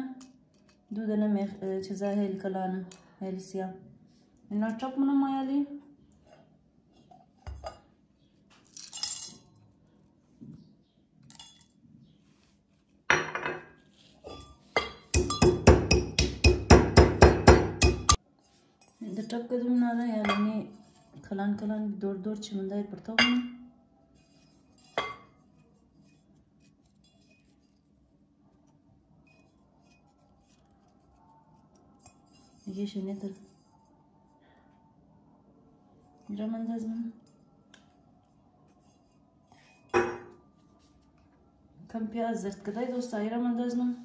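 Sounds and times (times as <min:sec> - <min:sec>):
brass pestle pounding: 0:15.1 - 0:18.2
spices rattling into a mortar: 0:15.1 - 0:18.2.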